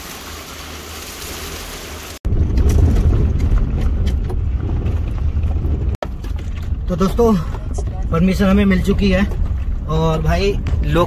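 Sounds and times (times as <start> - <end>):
running water hissing: 0.0 - 2.2
low rumble: 2.2 - 11.0.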